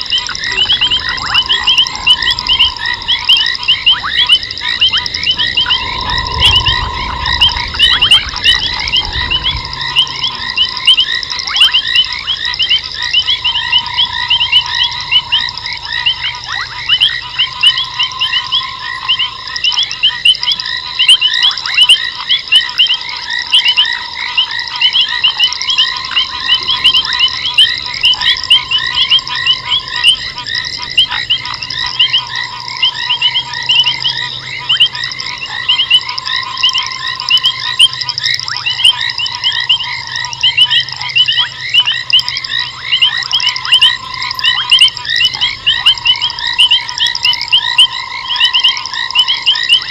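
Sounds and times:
low tone: 0.0s - 20.6s
frogs chirping: 0.0s - 49.9s
steady high trill: 0.0s - 49.9s.

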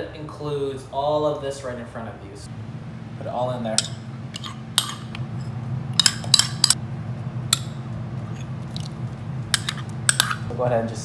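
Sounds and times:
steady low hum: 0.0s - 11.0s
metal spoon clinking on glass bowl: 6.0s - 6.8s.

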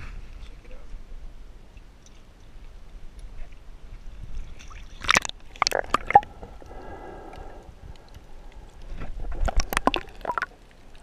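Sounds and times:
water sloshing rumble: 2.6s - 11.0s
sharp water splashes: 4.7s - 6.3s, 9.4s - 10.6s.

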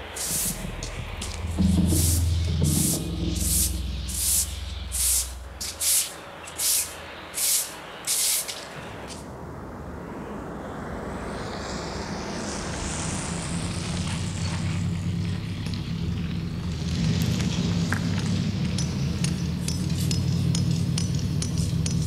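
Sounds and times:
car on slushy road: 11.5s - 19.2s.

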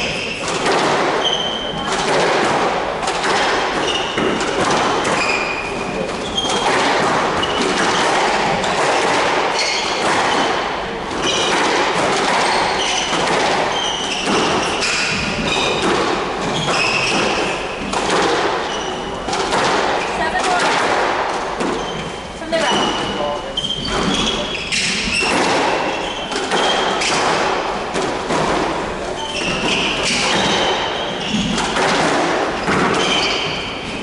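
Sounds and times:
shoes squeaking on wooden floor: 0.0s - 2.0s, 3.7s - 20.6s, 21.4s - 34.0s
squash balls thudding on walls: 0.0s - 34.0s.

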